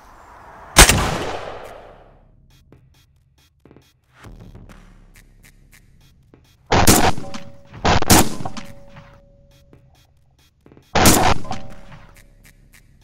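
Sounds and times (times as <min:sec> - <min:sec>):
shotgun shots: 0:00.8 - 0:02.1, 0:06.7 - 0:08.9, 0:11.0 - 0:12.0.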